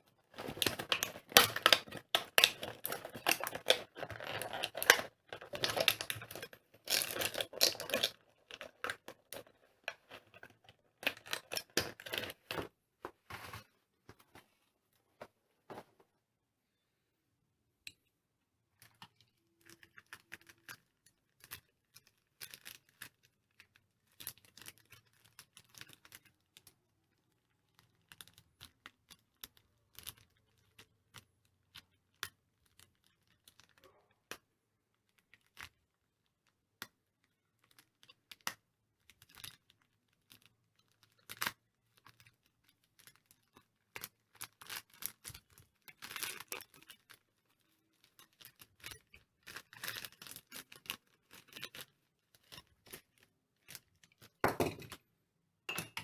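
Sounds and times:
plastic bags crinkling: 0:00.1 - 0:12.7, 0:41.0 - 0:55.0.

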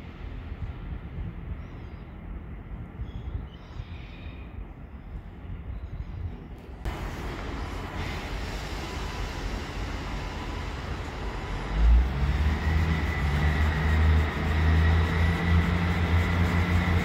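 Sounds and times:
train rumble: 0:00.0 - 0:17.0
high whine: 0:06.9 - 0:17.0.

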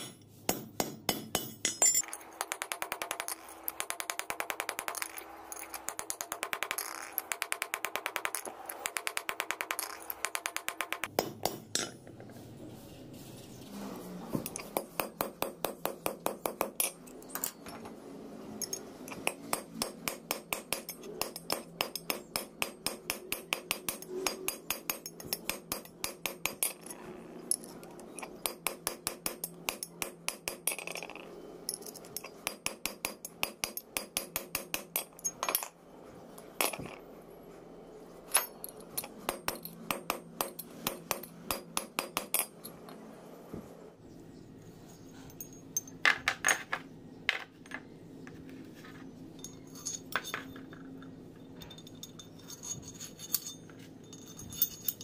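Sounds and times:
hammer striking steel: 0:00.0 - 0:12.0.

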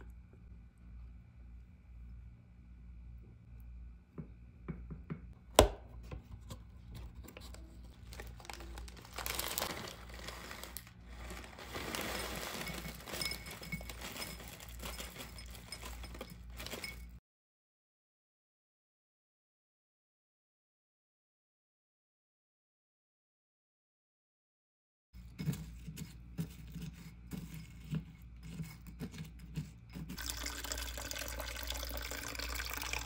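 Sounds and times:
plastic bag crinkling: 0:07.1 - 0:17.2
muesli pouring into dish: 0:08.0 - 0:17.0, 0:30.2 - 0:33.0
spoon clink: 0:12.4 - 0:17.2
spoon scraping ceramic dish: 0:25.2 - 0:30.2.

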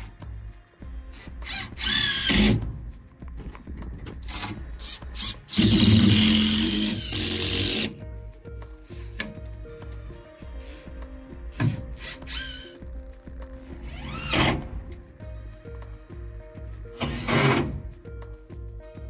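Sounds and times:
cordless drill driving screws: 0:01.4 - 0:02.5, 0:04.3 - 0:07.9.

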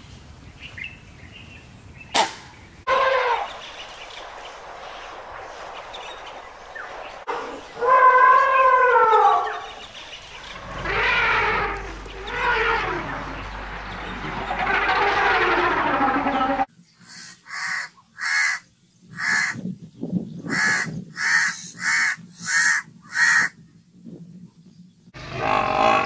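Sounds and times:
elephant calling: 0:07.3 - 0:17.7, 0:25.2 - 0:26.0
crow cawing: 0:17.1 - 0:18.6, 0:19.2 - 0:19.6, 0:20.5 - 0:23.5.

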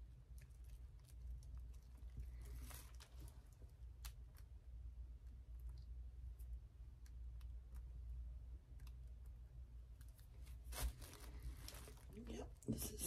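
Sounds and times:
low steady hum: 0:00.0 - 0:13.0
rustling: 0:00.3 - 0:04.5, 0:09.9 - 0:13.0.

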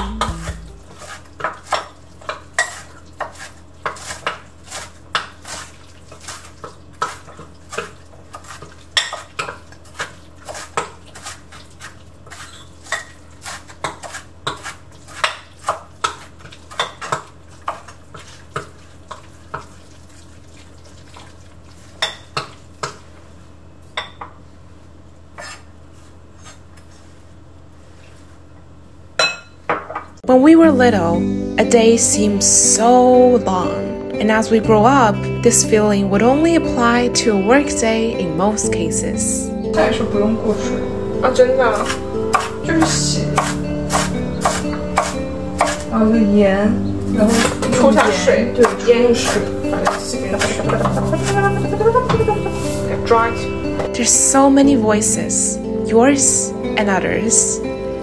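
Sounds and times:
knife chopping on cutting board: 0:41.8 - 0:45.8, 0:47.3 - 0:51.4.

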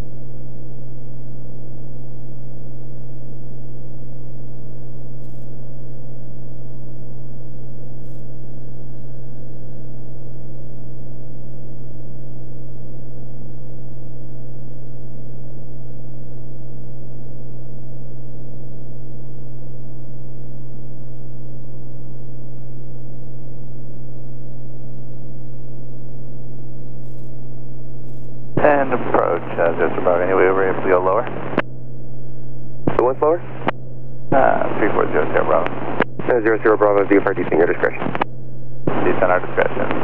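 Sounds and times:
aircraft engine droning in cabin: 0:28.6 - 0:31.6, 0:34.4 - 0:38.2.

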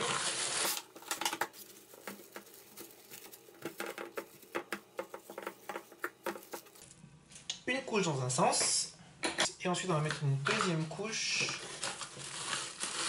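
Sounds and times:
cling film crinkling: 0:00.0 - 0:07.0, 0:11.4 - 0:13.0.

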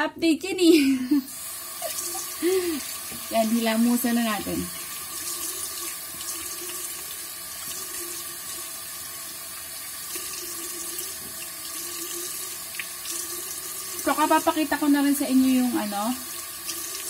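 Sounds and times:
face washing with hands: 0:01.3 - 0:14.5
tap running into sink: 0:03.0 - 0:06.8, 0:10.2 - 0:11.8.

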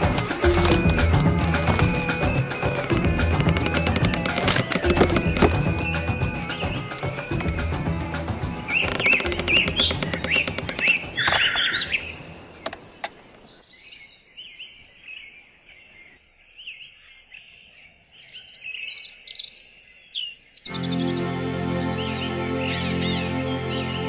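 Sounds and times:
music: 0:00.0 - 0:12.0, 0:20.7 - 0:24.0
small birds chirping: 0:00.0 - 0:24.0.

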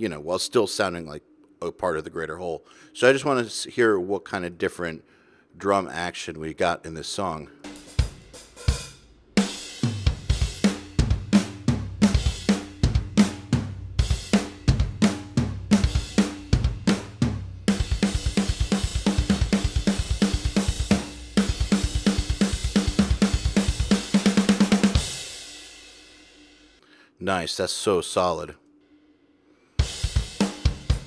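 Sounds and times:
rock drum kit beat: 0:07.6 - 0:26.6, 0:29.8 - 0:31.0.

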